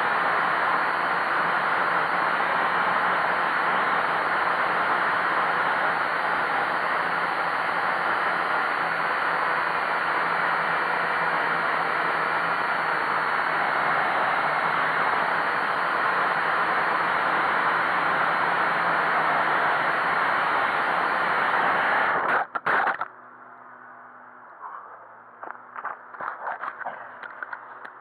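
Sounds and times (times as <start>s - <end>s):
quadcopter propellers hissing: 0.1s - 22.4s
faint low hum: 22.6s - 28.0s.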